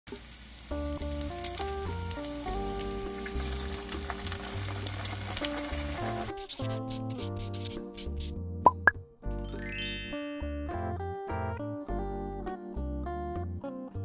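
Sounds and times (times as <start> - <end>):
food sizzling in a pan: 0.1 - 8.2
light background music: 0.7 - 14.0.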